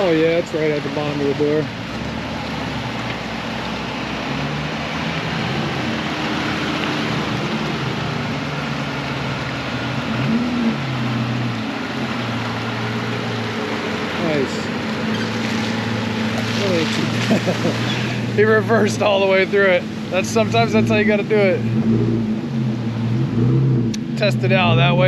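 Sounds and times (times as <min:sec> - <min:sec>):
truck engine running: 0:00.0 - 0:25.0
muddy water sloshing: 0:10.8 - 0:22.7.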